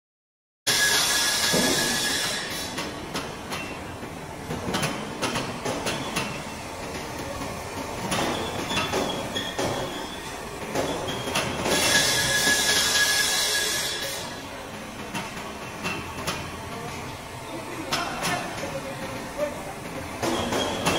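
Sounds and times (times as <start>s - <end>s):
metal clanks and knocks: 4.5s - 12.1s.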